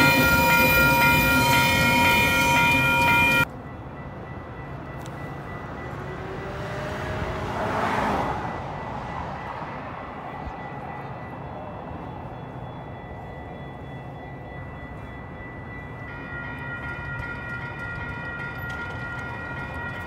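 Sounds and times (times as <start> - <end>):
city rumble: 0.0 - 20.0
passing vehicle: 5.2 - 12.0.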